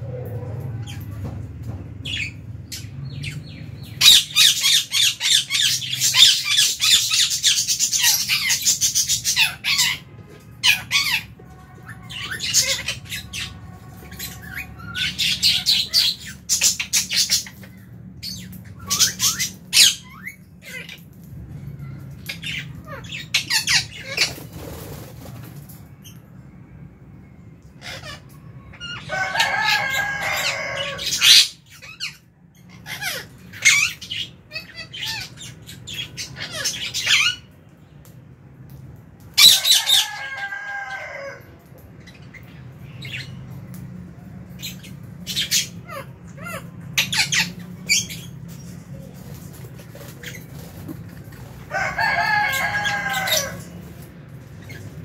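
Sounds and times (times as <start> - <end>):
lovebirds chirping and chattering: 0.0 - 26.2, 27.6 - 55.0.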